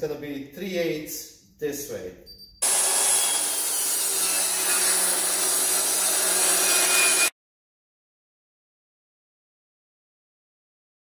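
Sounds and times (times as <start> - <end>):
table saw cutting wood: 2.6 - 7.4.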